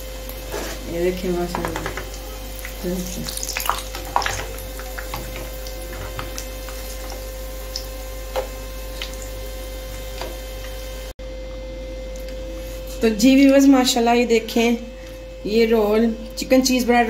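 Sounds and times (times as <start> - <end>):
food sizzling in hot oil: 0.0 - 11.1
faint hum: 0.0 - 17.0.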